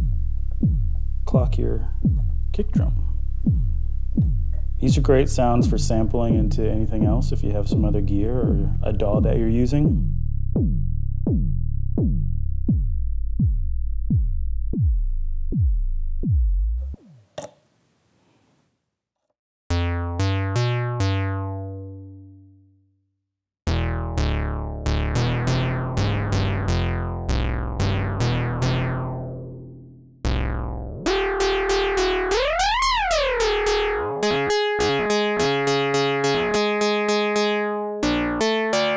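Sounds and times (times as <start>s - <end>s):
synthesizer kick drum hits: 0.0s - 17.0s, 30.2s - 38.9s
synthesizer notes: 19.7s - 22.6s, 23.7s - 38.9s.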